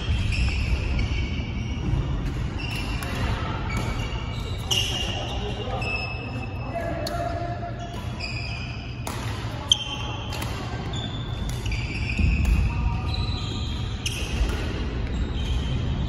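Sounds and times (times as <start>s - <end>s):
shoes squeaking on floor: 0.0s - 9.0s, 10.9s - 14.5s, 15.1s - 16.0s
rackets striking shuttlecock: 1.8s - 5.2s, 6.8s - 12.8s, 13.8s - 15.7s.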